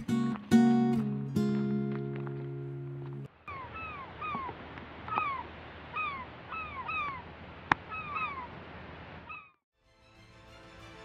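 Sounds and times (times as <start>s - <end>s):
gulls mewing calls: 3.4s - 8.6s, 9.2s - 9.6s.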